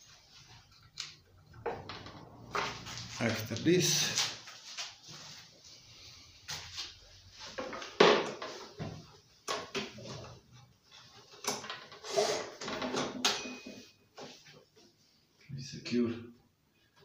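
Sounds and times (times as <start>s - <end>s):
tools and parts clattering: 11.1s - 13.9s.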